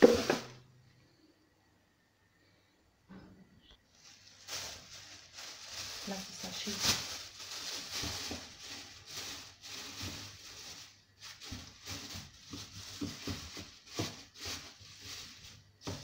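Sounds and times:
plastic bin liner rustling: 0.0s - 0.6s, 3.9s - 16.0s.

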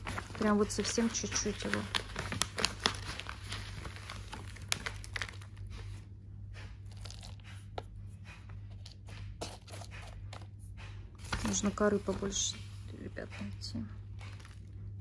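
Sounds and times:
dry moss crackling: 0.0s - 5.9s
plastic packaging crinkling: 0.0s - 6.0s, 6.8s - 7.6s, 14.0s - 15.0s.

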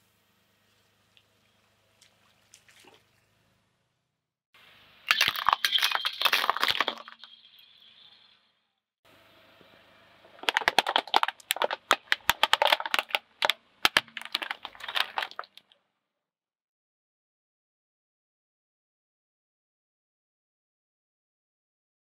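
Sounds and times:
plastic toy cracking under tyre: 5.1s - 7.2s, 10.3s - 15.7s.

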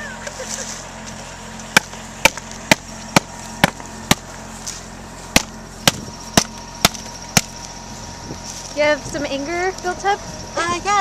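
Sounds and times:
hand tool striking wax blocks: 5.3s - 7.5s.

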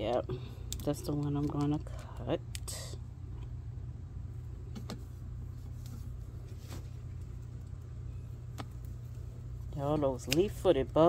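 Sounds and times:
low machine rumble: 0.0s - 11.0s.

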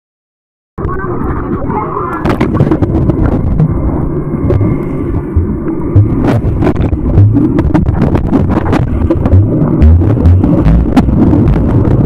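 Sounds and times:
muffled underwater rumble: 0.8s - 12.0s
bubbles clicking and knocking: 2.2s - 12.0s.

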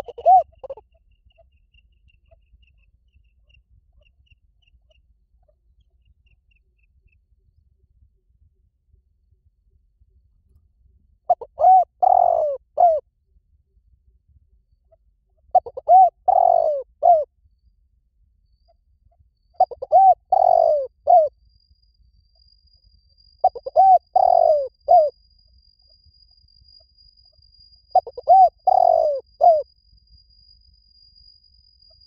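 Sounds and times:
dove cooing: 0.0s - 0.8s, 11.3s - 13.0s, 15.5s - 17.3s, 19.6s - 21.3s, 23.4s - 25.1s, 27.9s - 29.6s.

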